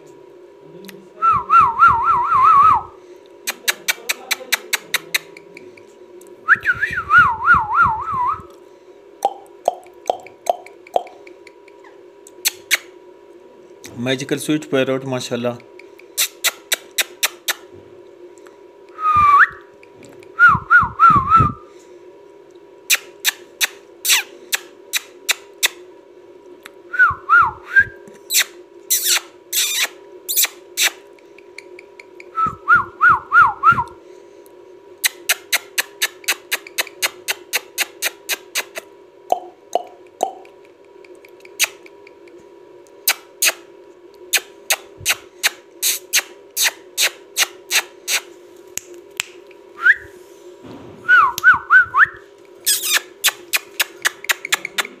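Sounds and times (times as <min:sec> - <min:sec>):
steady low hum: 0:00.0 - 0:55.0
short wavering whistles: 0:49.8 - 0:50.1.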